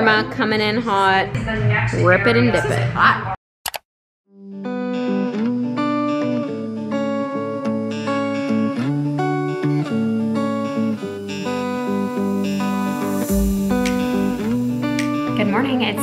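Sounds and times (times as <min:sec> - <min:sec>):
guitar music: 0:04.3 - 0:16.0.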